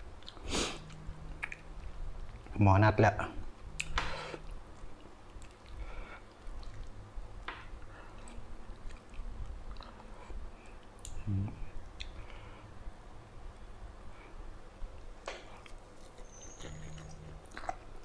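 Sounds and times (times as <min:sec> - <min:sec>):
person chewing food: 0:00.2 - 0:02.5, 0:03.7 - 0:12.4, 0:15.0 - 0:18.0
person humming: 0:11.2 - 0:11.7.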